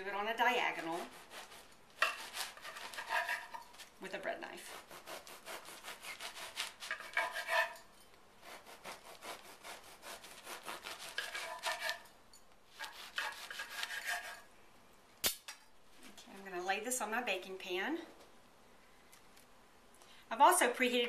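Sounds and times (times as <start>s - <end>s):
bread knife sawing crusty loaf: 0.7s - 3.6s, 4.6s - 7.8s, 8.4s - 12.1s, 12.8s - 14.4s.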